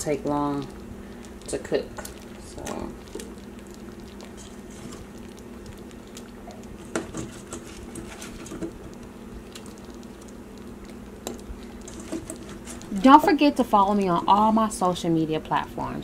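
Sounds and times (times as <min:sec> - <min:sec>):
steady low hum: 0:00.0 - 0:16.0
pattering and clicks in roasting pan: 0:00.2 - 0:13.0.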